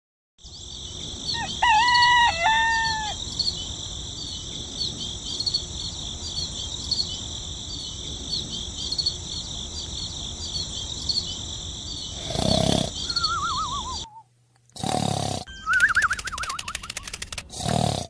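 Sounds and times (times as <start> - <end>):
insect chirping: 0.4 - 14.3, 15.0 - 18.0
rooster crowing: 1.3 - 3.2.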